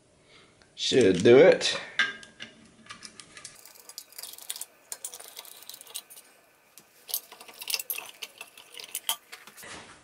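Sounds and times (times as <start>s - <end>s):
screwdriver and screws clinking: 3.0s - 9.6s.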